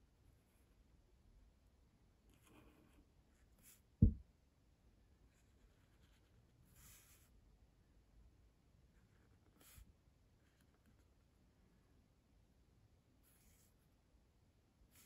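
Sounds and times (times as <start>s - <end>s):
pen scratching on paper: 2.3s - 3.0s
dull low thump: 4.0s - 4.2s.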